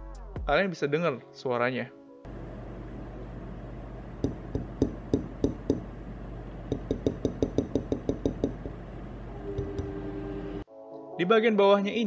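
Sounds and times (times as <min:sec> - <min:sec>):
finger tapping on metal: 0:04.2 - 0:05.9, 0:06.7 - 0:08.8.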